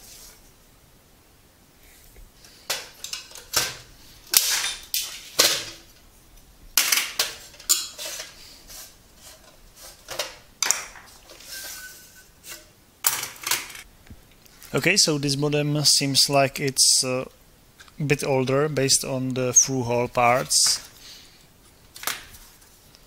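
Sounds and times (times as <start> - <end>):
metal lid scraping: 11.3 - 12.7.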